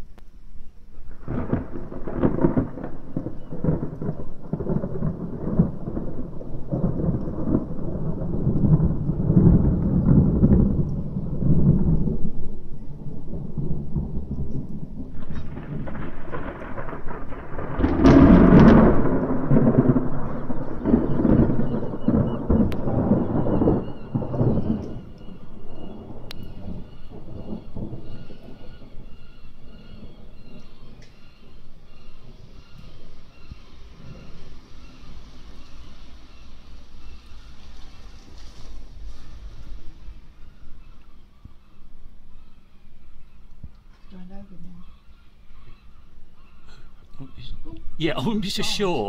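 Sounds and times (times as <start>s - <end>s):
rolling thunder: 0.8s - 49.0s
sharp thunder crack: 1.1s - 41.8s.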